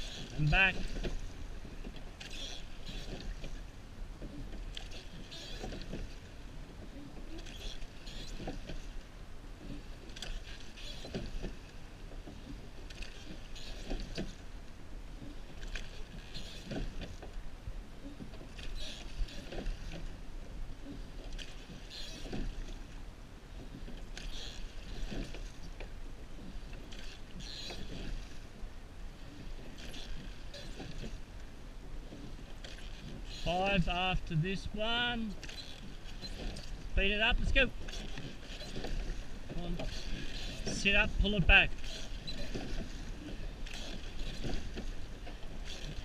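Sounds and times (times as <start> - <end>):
water rushing along hull: 0.0 - 46.0
oar blades splashing: 34.6 - 46.0.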